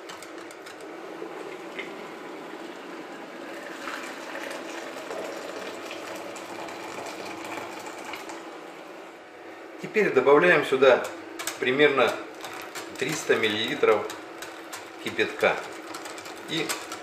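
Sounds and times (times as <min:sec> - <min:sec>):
water pouring into batter: 0:03.6 - 0:08.4.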